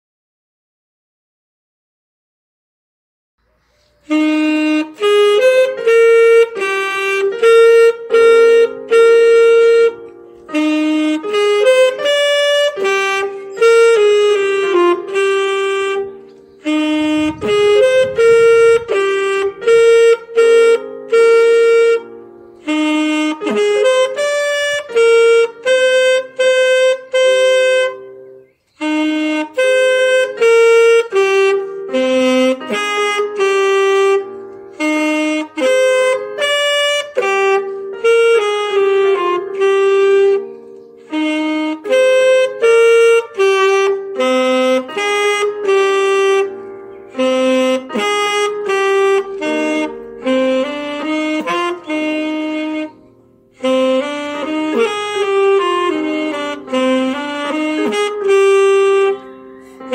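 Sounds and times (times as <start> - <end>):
digital piano accompaniment: 3.4 - 59.9
saxophone melody: 3.5 - 59.9.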